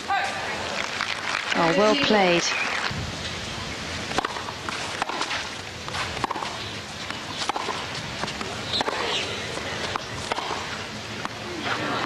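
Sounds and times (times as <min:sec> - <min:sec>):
tennis racket striking ball: 0:04.1 - 0:09.2, 0:09.8 - 0:11.4.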